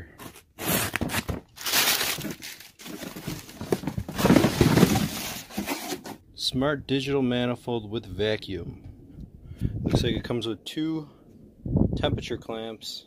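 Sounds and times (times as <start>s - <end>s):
cardboard box flaps rustling: 0.6s - 6.2s.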